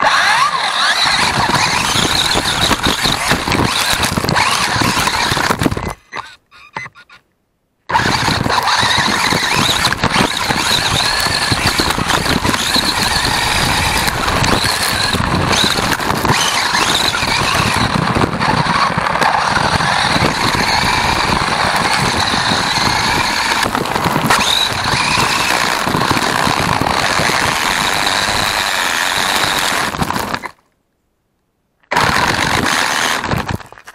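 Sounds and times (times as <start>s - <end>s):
electric motor whine: 0.0s - 7.1s, 7.9s - 30.5s
tyres crunching on gravel: 8.0s - 28.5s.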